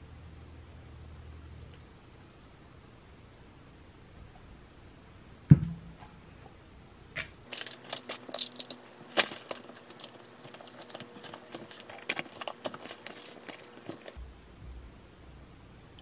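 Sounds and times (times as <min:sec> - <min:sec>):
book pages flipping: 0:07.5 - 0:14.2.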